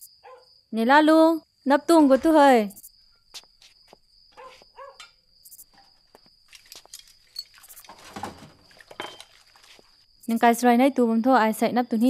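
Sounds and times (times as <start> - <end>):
dog barking: 0.2 - 0.5, 4.4 - 5.1.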